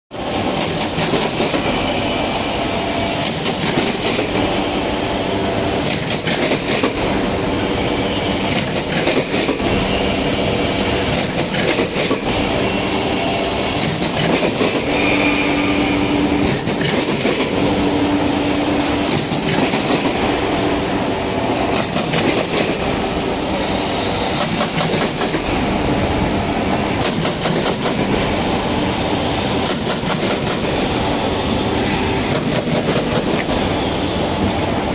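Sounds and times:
steady hum: 0.2s - 34.9s
sharp mechanical clacks: 0.5s - 1.9s, 3.2s - 4.5s, 5.8s - 7.2s, 8.5s - 9.9s, 11.0s - 12.4s, 13.8s - 15.2s, 16.4s - 17.7s, 19.0s - 20.4s, 21.7s - 23.0s, 24.3s - 25.6s, 26.8s - 28.3s, 29.4s - 30.8s, 32.2s - 33.6s
machine clattering: 0.6s - 1.8s, 3.2s - 4.5s, 5.8s - 7.2s, 8.5s - 9.8s, 11.1s - 12.4s, 13.8s - 15.0s, 16.4s - 17.6s, 19.0s - 20.3s, 21.7s - 23.0s, 24.3s - 25.6s, 26.7s - 28.4s, 29.5s - 31.0s, 32.2s - 33.5s.

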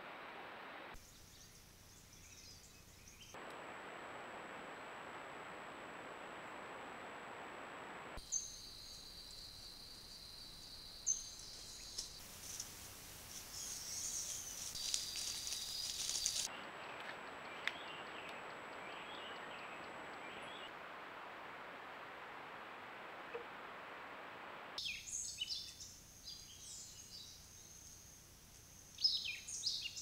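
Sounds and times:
steady hiss: 0.0s - 16.5s
animal rustling in dry leaves: 11.9s - 16.5s.

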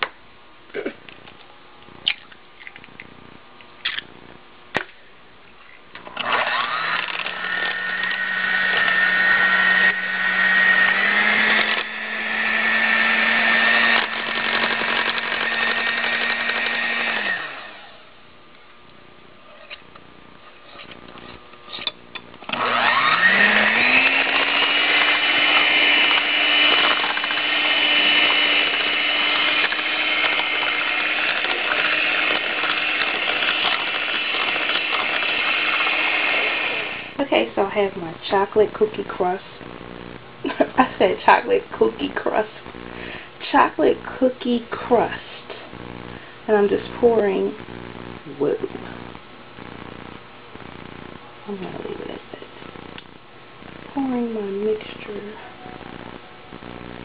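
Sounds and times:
mixer clicks: 6.0s - 12.0s, 21.8s - 37.2s
electric hand mixer whine: 6.0s - 18.1s, 20.7s - 37.2s.

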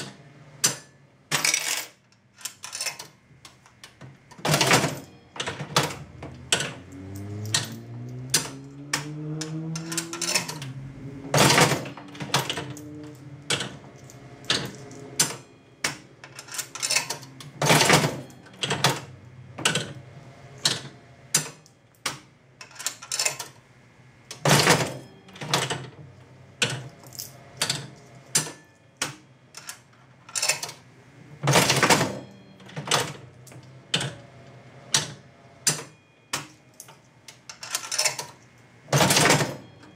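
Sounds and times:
slot machine handle clunk: 0.0s - 3.2s, 3.9s - 20.0s, 24.3s - 26.0s, 26.6s - 30.8s, 31.4s - 34.2s, 34.9s - 39.9s
rising whirr: 6.0s - 13.5s.

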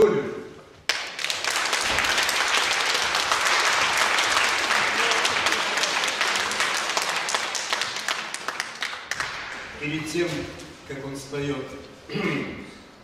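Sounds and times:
audience applauding: 0.9s - 9.8s.

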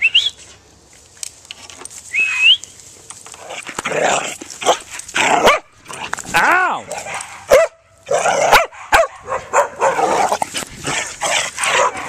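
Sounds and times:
person whistling rising whistles: 2.1s - 2.7s.

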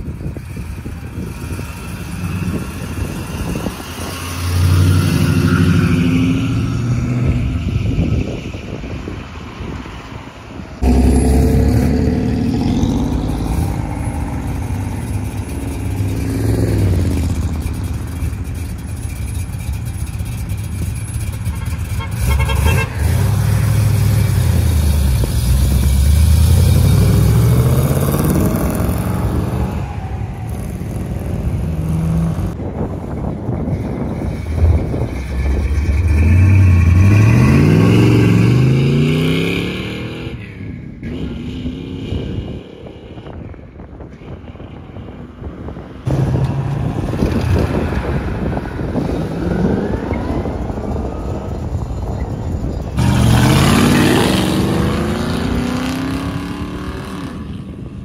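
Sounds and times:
car engine revving: 10.8s - 29.9s, 53.0s - 57.6s.

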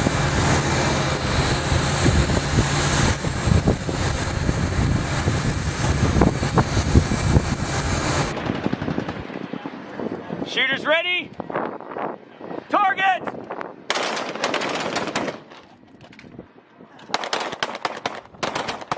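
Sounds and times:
low engine rumble: 0.0s - 10.5s
wind rushing over microphone: 0.0s - 18.7s.

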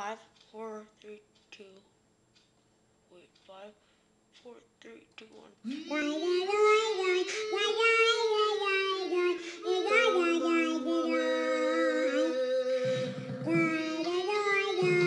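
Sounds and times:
child singing in character voice: 4.5s - 15.0s.

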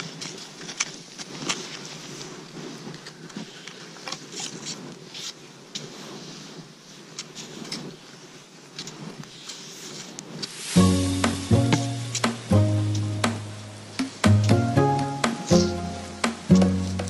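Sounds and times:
skis swishing through snow: 0.0s - 17.0s
sharp clicks and taps: 11.2s - 17.0s.

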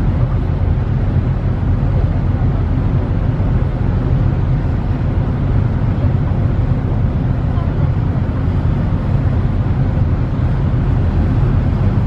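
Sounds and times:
ship low rumble: 0.0s - 12.0s.

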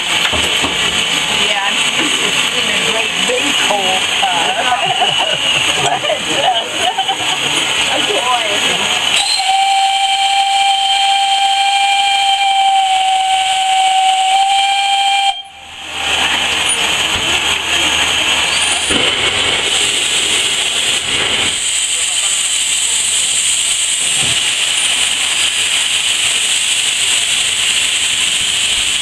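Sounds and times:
loud steam hiss: 0.0s - 29.0s
steam locomotive whistle: 9.1s - 16.8s.

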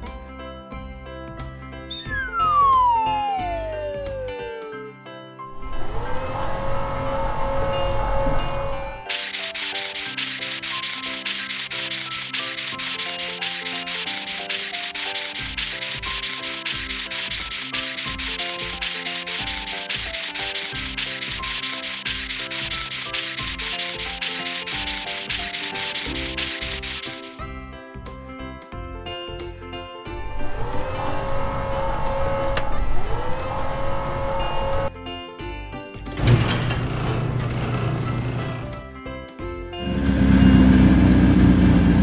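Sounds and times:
simple music tune: 1.9s - 6.8s
cloth brush scrubbing: 9.1s - 27.4s.

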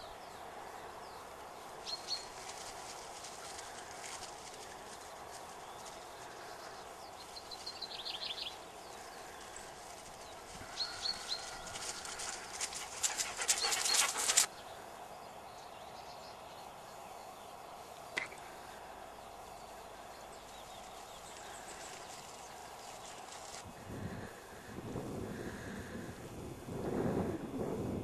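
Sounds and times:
dog panting: 10.7s - 14.5s.

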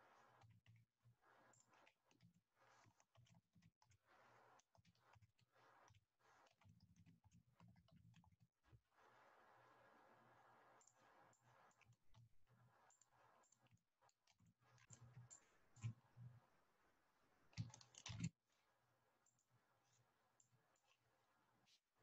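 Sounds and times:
faint keyboard typing: 0.0s - 16.6s, 17.3s - 18.4s, 19.2s - 21.8s
mouse clicks: 17.5s - 18.3s.

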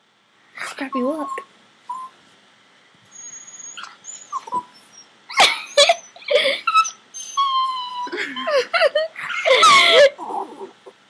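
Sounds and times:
small dog yelping and whining: 0.6s - 2.2s, 3.1s - 8.5s, 9.2s - 10.8s.

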